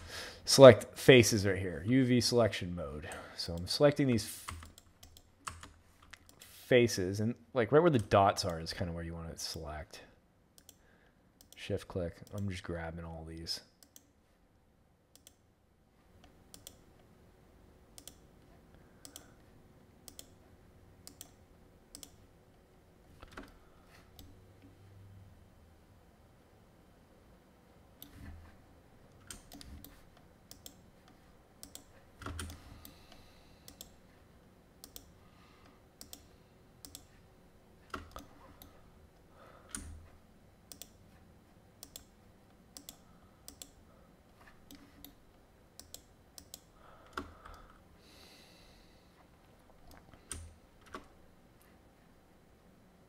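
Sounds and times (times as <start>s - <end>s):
computer mouse clicking: 4.4s - 6.4s, 10.6s - 10.8s, 13.8s - 14.1s, 15.1s - 15.4s, 16.2s - 16.8s, 18.0s - 18.2s, 19.0s - 19.4s, 20.0s - 20.4s, 21.0s - 22.2s, 29.1s - 34.0s, 34.8s - 35.1s, 36.0s - 37.1s, 40.7s - 41.0s, 41.8s - 42.1s, 42.8s - 43.8s, 45.8s - 47.7s, 49.9s - 51.1s.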